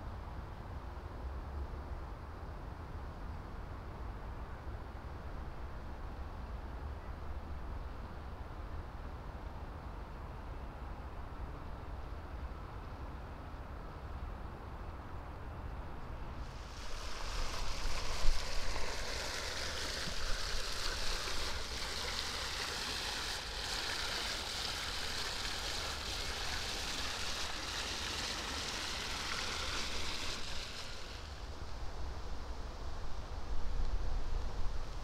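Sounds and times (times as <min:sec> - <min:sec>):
water splashing: 0:16.4 - 0:31.8.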